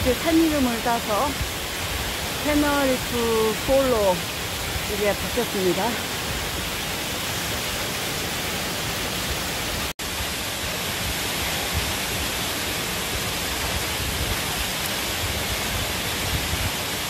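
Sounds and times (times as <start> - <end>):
waterfall roaring: 0.0 - 17.0.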